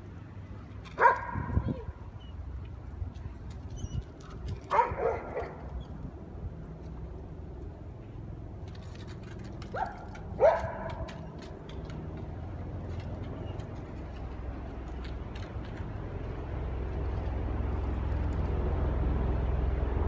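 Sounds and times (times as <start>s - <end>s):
dog barking: 1.0s - 1.6s, 4.7s - 5.6s, 9.7s - 11.1s.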